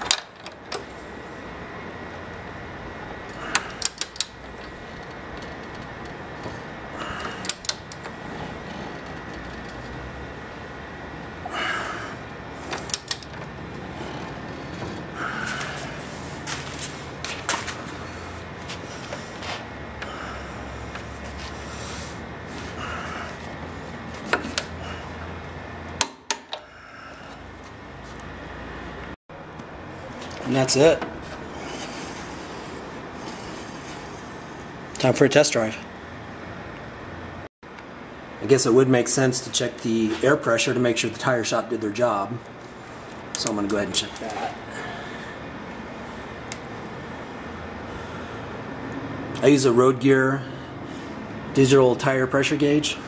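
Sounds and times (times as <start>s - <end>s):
low steady hum: 0.0s - 53.0s
torque wrench clicking: 3.5s - 4.4s, 7.3s - 8.1s, 12.7s - 13.4s.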